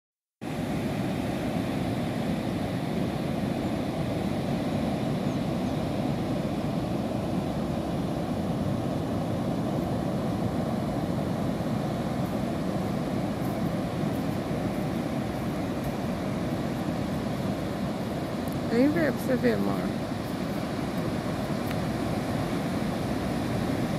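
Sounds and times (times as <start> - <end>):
rough surf breaking on rocks: 6.4 - 23.9.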